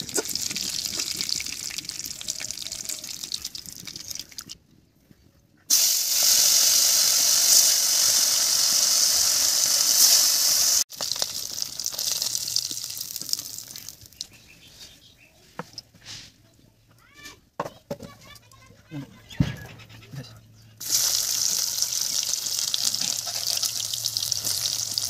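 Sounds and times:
fish sizzling in hot oil: 0.0s - 4.2s, 5.7s - 14.3s, 20.8s - 25.0s.

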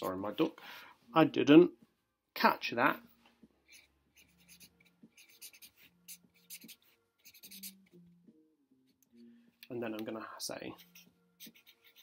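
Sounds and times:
marker scratching on paper: 3.7s - 7.8s, 10.7s - 12.0s.

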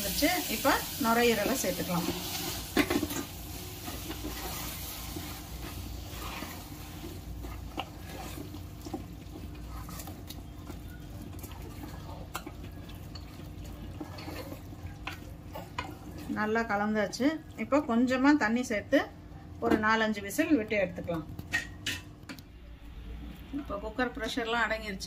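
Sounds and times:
low steady hum: 0.0s - 25.0s
wet squelchy stirring: 0.1s - 19.6s.

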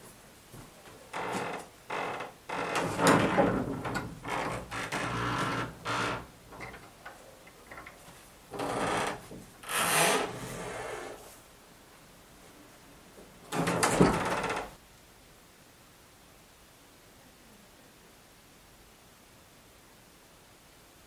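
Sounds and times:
wooden barn door scraping open: 1.1s - 7.0s, 7.7s - 11.3s, 13.5s - 14.8s.

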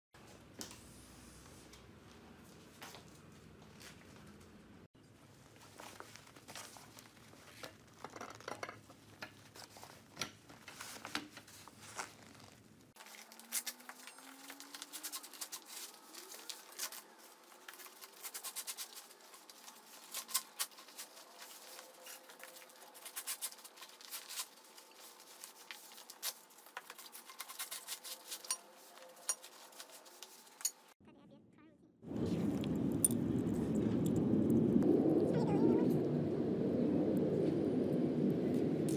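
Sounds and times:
nylon fabric rustling: 10.7s - 30.7s.

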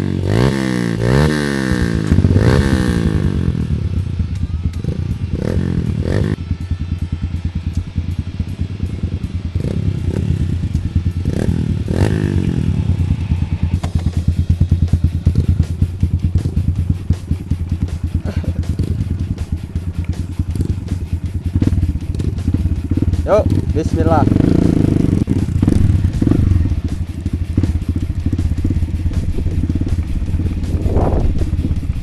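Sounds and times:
motorcycle engine idling: 0.0s - 32.0s.

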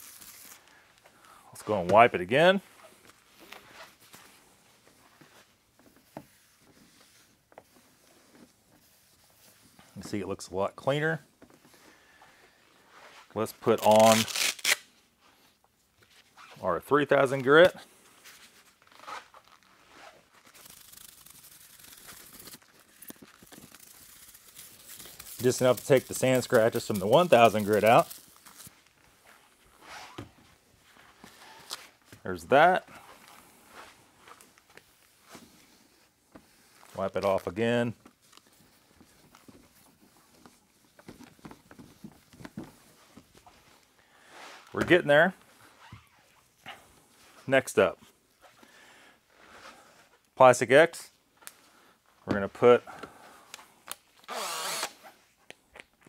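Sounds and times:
faint rustling and scraping: 0.0s - 14.1s, 15.0s - 50.2s
soft steady hiss: 0.0s - 56.0s
towel rubbing plastic: 13.0s - 14.8s, 18.2s - 28.6s.

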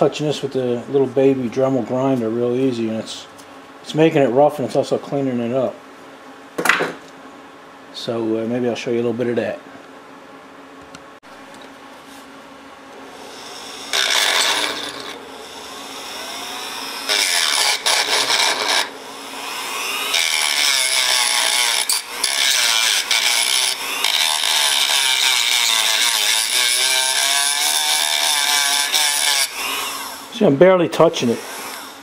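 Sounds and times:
rotary tool grinding metal: 13.1s - 30.4s, 31.2s - 32.0s.

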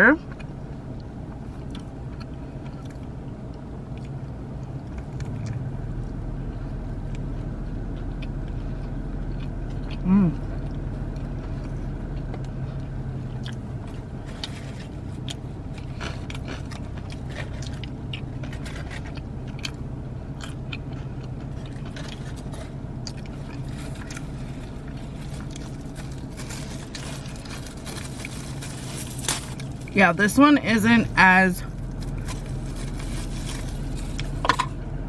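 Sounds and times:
steady low hum: 0.0s - 35.0s
crunchy chewing: 7.0s - 30.0s, 31.7s - 34.5s.

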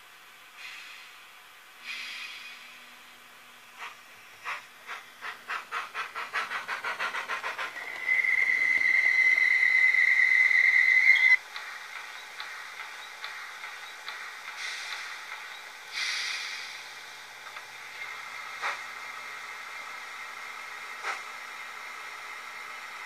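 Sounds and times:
steam locomotive exhaust chuffs: 0.4s - 23.0s
steam hisses: 0.5s - 11.8s, 14.2s - 23.0s.

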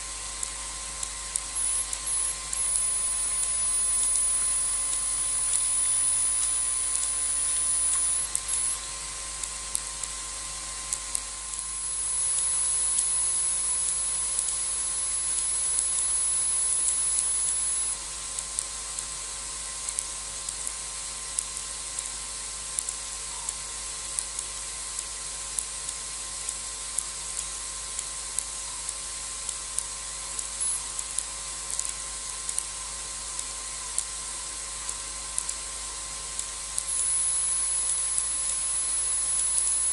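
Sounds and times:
faint constant hum: 0.0s - 39.9s
faint scattered ticks: 0.0s - 39.9s
steady hiss: 1.3s - 9.9s
high thin whine: 1.4s - 8.9s.

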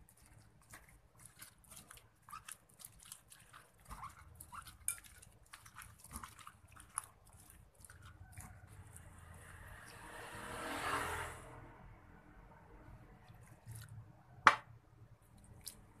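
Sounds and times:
hand squishing onion slices: 0.0s - 10.2s, 13.1s - 14.5s, 15.1s - 16.0s.

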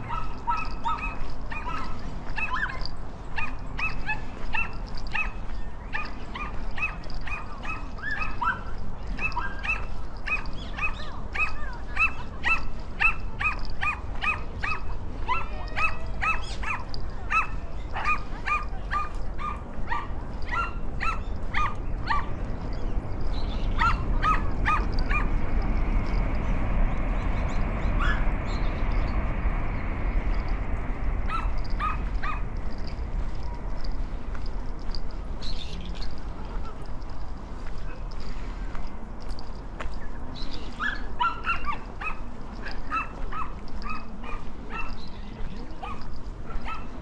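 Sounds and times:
small dog yapping: 0.0s - 5.4s, 6.0s - 22.4s, 23.4s - 25.4s, 31.3s - 32.5s, 40.8s - 45.1s, 45.8s - 47.0s
low rumble: 16.5s - 40.8s.

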